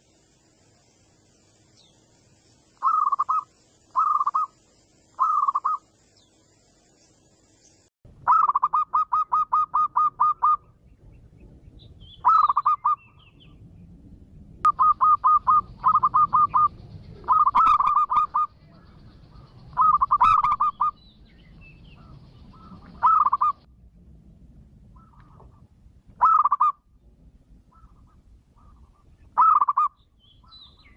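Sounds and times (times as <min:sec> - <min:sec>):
dove cooing: 0:02.8 - 0:04.6, 0:05.2 - 0:05.8, 0:08.3 - 0:10.8, 0:12.2 - 0:13.1, 0:14.7 - 0:21.0, 0:21.9 - 0:23.7, 0:25.0 - 0:26.8, 0:27.7 - 0:30.6.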